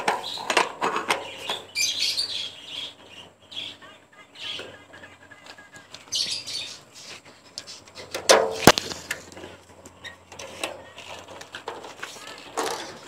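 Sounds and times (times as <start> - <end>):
birds chirping: 0.1 - 7.0.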